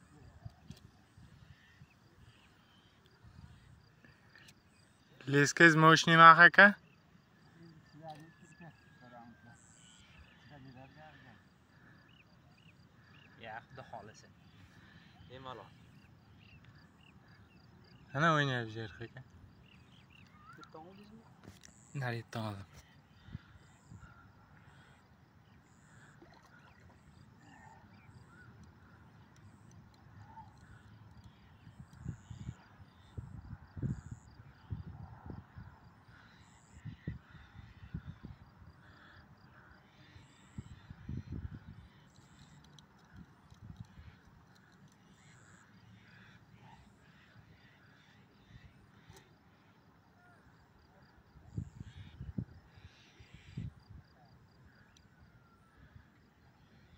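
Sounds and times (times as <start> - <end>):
distant cawing calls: 1.1 - 18.1, 18.8 - 33.2, 35.4 - 56.9
wind rumble on microphone: 31.6 - 35.8, 40.6 - 41.9, 51.5 - 52.7.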